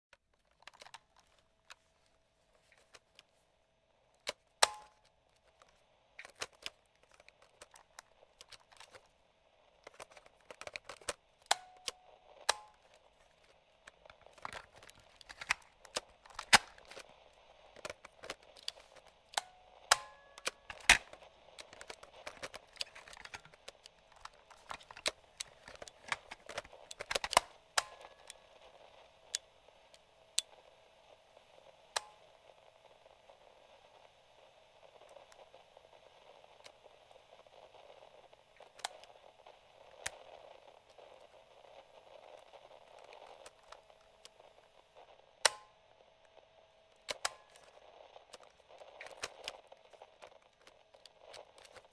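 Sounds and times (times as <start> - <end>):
radio switches and buttons clicking: 0.1 - 3.4, 4.1 - 51.9
light radio static: 0.1 - 51.9.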